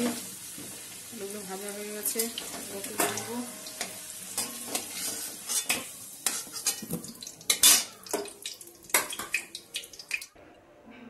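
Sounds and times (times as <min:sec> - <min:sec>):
oil sizzling: 0:00.0 - 0:10.4
metal spatula scraping pan: 0:02.2 - 0:07.9.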